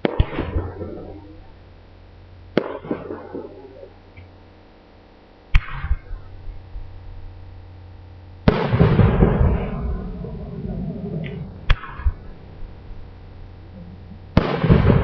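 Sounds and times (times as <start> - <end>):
firework crackle: 8.4 - 15.0
rumbling firework boom: 8.4 - 15.0
firework shells bursting: 14.3 - 15.0.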